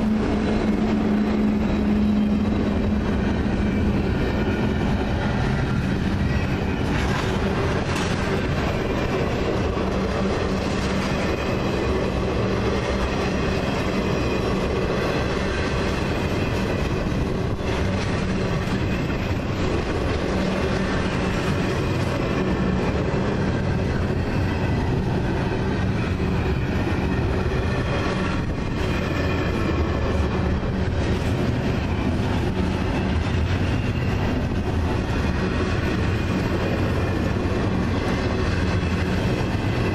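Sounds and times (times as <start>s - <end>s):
steel wheels rumbling on rail: 0.0s - 39.9s
wheels clicking over rail joints: 0.0s - 39.9s.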